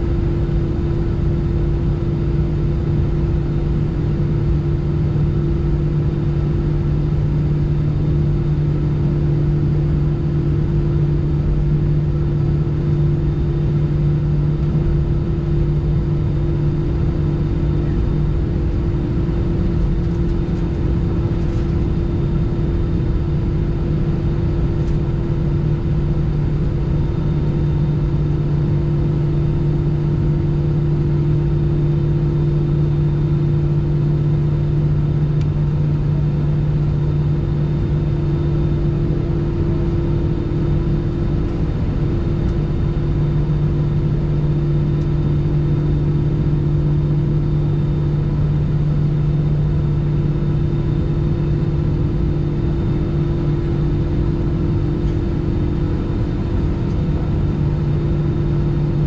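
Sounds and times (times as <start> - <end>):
jet engines idling: 14.5 - 30.6, 50.2 - 59.0.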